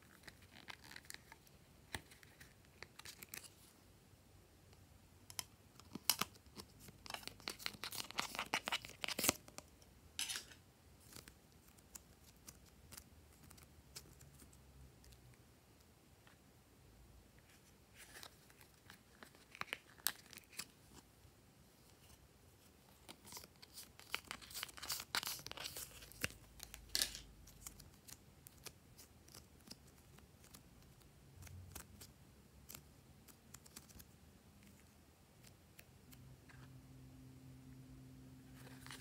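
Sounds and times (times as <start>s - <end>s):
clay peeling from plastic palette: 22.9s - 35.9s.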